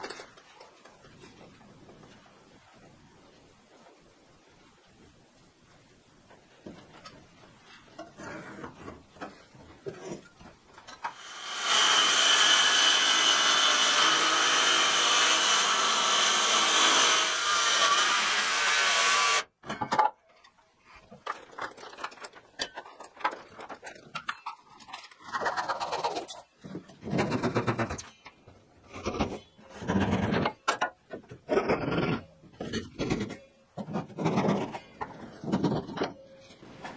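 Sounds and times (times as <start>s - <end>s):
circular saw cutting wood: 11.1s - 19.5s.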